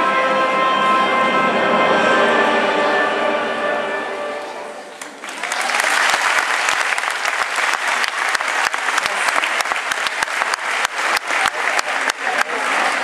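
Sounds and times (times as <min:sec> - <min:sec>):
audience applauding: 0:05.0 - 0:13.0.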